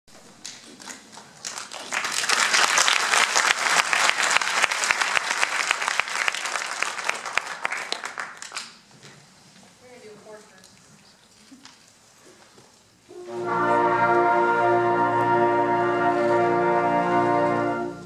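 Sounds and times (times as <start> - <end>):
audience applauding: 0.4 - 8.9.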